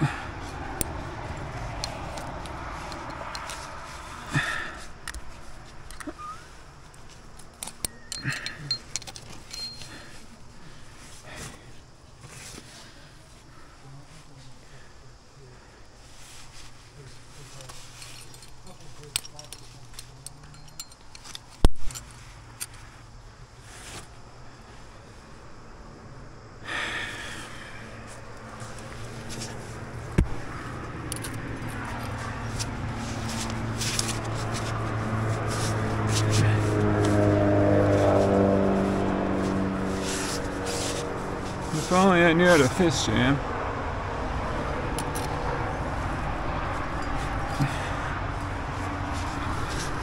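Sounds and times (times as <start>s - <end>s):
person breathing hard: 0.0s - 5.0s, 9.8s - 14.0s, 26.6s - 28.7s, 47.5s - 48.7s
metal carabiners clinking: 1.7s - 3.7s, 4.4s - 10.3s, 17.6s - 22.8s, 30.9s - 34.7s, 44.9s - 45.4s, 46.8s - 48.0s
rustling: 16.0s - 23.0s.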